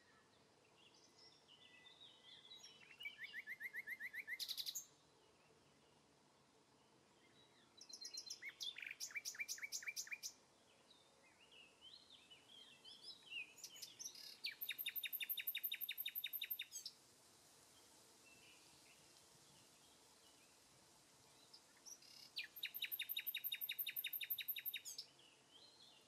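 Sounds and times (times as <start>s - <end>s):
bird chirps: 1.2s - 4.9s, 7.2s - 16.9s, 21.4s - 26.0s.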